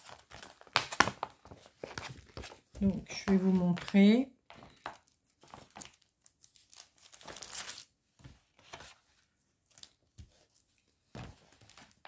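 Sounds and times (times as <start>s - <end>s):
plastic bag crinkling: 4.7s - 7.9s.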